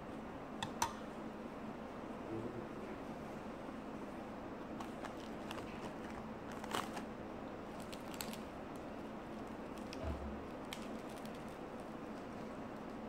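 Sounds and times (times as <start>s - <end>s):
steady low hum: 0.0s - 13.0s
crunching of eating: 4.7s - 13.0s.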